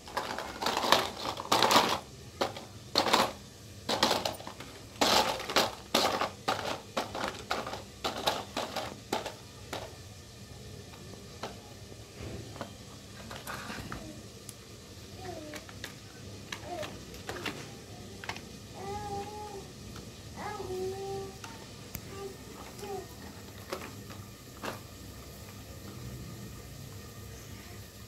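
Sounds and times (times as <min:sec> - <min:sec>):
plastic toy cars clattering on concrete: 0:00.0 - 0:10.0, 0:10.9 - 0:14.2, 0:15.2 - 0:19.5, 0:22.6 - 0:26.1.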